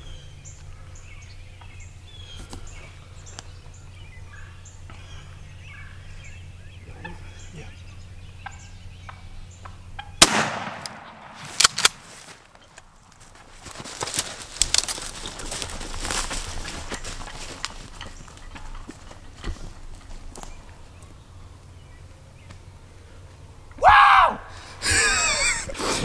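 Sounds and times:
wild turkeys calling: 0:00.0 - 0:11.4
loud gunshot: 0:10.2 - 0:11.6.

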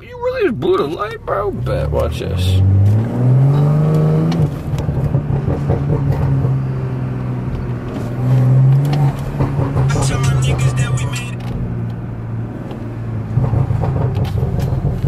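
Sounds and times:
car engine revving: 0:00.0 - 0:15.0
exhaust pops and crackles: 0:07.5 - 0:12.0, 0:13.3 - 0:15.0.

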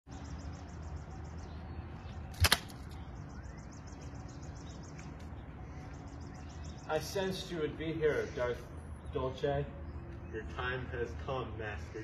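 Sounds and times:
sharp clicks: 0:02.3 - 0:03.0.

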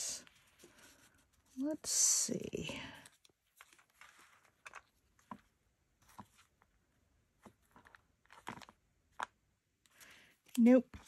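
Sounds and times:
paper and stickers rustling: 0:00.0 - 0:06.6.

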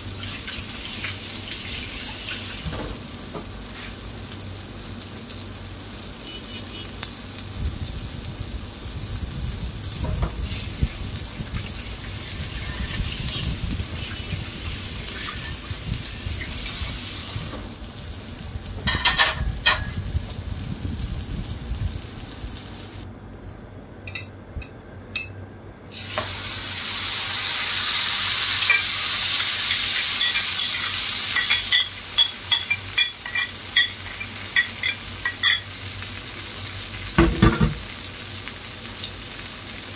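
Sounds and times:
omelette frying in oil: 0:00.0 - 0:23.1, 0:25.9 - 0:39.9.

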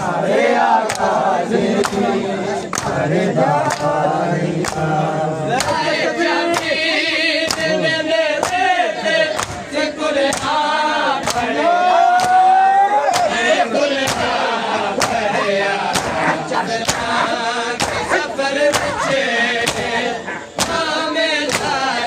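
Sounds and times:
men chanting a lament: 0:00.0 - 0:22.0
hand slaps on bare chests: 0:00.8 - 0:01.1, 0:01.8 - 0:02.1, 0:02.7 - 0:03.0, 0:03.6 - 0:03.9, 0:04.6 - 0:04.9, 0:05.6 - 0:05.8, 0:07.4 - 0:07.8, 0:08.4 - 0:08.7, 0:09.3 - 0:10.6, 0:11.2 - 0:11.5, 0:12.1 - 0:12.5, 0:13.1 - 0:13.4, 0:14.0 - 0:14.4, 0:15.0 - 0:15.3, 0:15.9 - 0:21.9.

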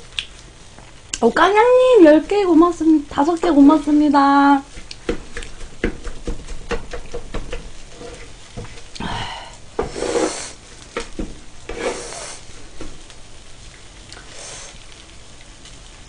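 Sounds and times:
rice sizzling: 0:00.0 - 0:16.0
utensils scraping a pan: 0:03.0 - 0:08.9, 0:09.8 - 0:12.5.

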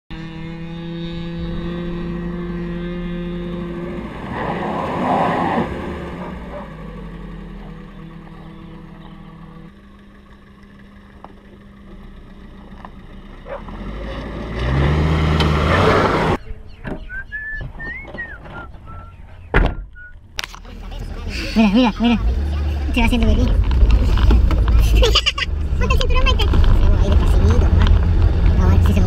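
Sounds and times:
motor humming: 0:05.8 - 0:13.6.

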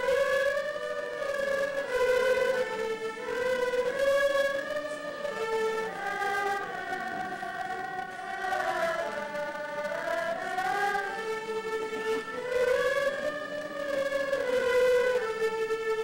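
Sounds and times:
erhu ensemble slow melody: 0:00.0 - 0:16.0.

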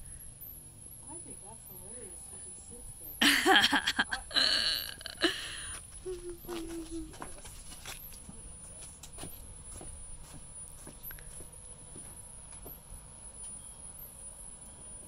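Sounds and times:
short steady hum: 0:03.0 - 0:07.2
faint high chirp: 0:10.5 - 0:15.0.

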